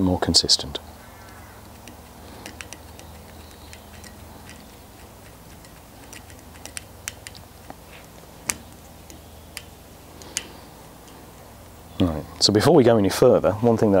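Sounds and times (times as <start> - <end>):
serving jig clicking: 1.2 - 7.8, 8.4 - 11.2.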